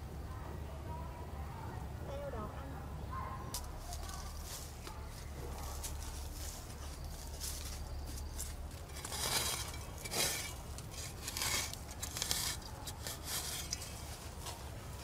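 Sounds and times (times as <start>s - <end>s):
digging in straw and soil: 3.5s - 15.0s.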